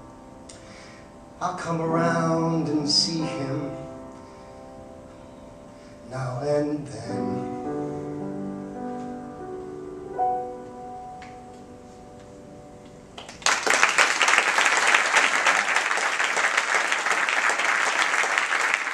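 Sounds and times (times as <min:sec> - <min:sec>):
piano chords: 0:00.0 - 0:13.6
audience applause: 0:13.2 - 0:18.9.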